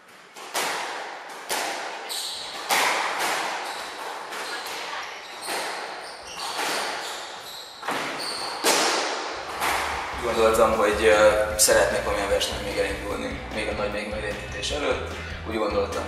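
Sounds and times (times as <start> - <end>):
squash ball striking rackets and walls: 0.0 - 10.6
shoes squeaking on wooden floor: 1.9 - 10.2.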